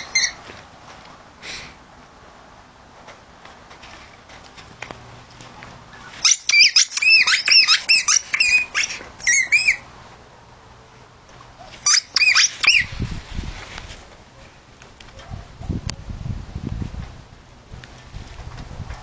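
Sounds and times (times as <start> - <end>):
rubber squeaky ball squeaking: 0.0 - 0.4, 6.0 - 9.9, 11.8 - 12.9.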